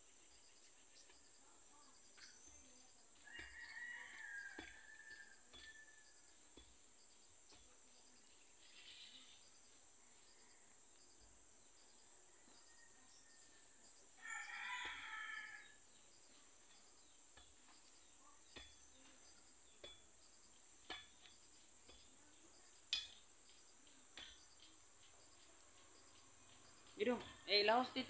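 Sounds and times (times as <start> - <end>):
rooster crowing: 3.2 - 6.2, 14.2 - 15.8.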